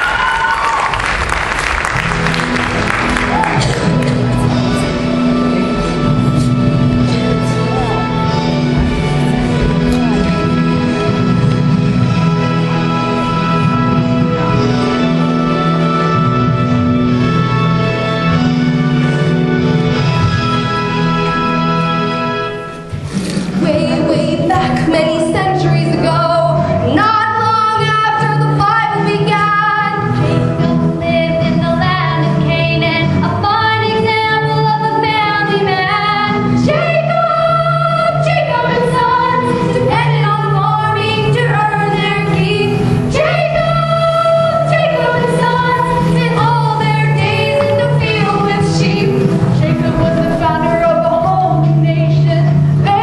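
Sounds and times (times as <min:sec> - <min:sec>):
instrumental accompaniment with bass: 0:00.0 - 0:53.0
woman singing: 0:23.6 - 0:30.4, 0:31.0 - 0:53.0.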